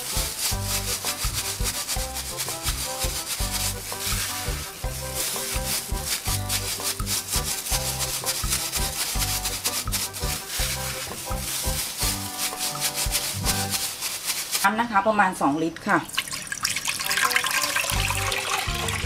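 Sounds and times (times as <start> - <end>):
background music with low beat: 0.0 - 13.9
plastic bag crinkling: 0.0 - 15.0.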